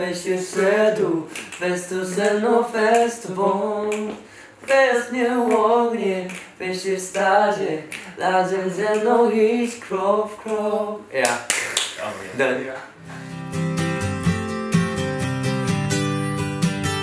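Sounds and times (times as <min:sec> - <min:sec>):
men singing a cappella: 0:00.0 - 0:11.1.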